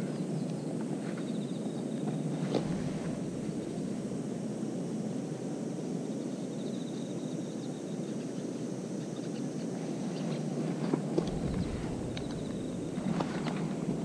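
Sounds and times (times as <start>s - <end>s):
low outdoor rumble: 1.9s - 6.1s, 9.9s - 14.0s.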